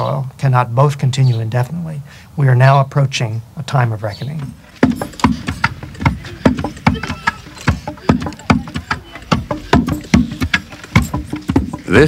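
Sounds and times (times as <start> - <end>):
wooden pestles pounding in mortars: 4.6 - 12.0.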